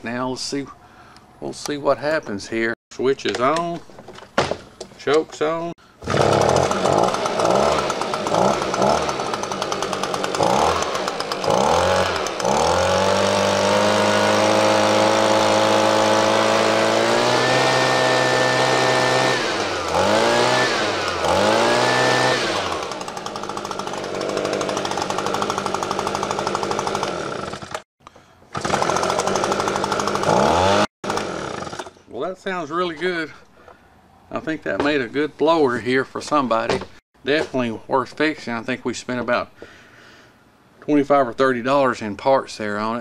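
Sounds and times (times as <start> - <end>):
leaf blower engine revving: 6.0 - 27.8, 28.5 - 32.1.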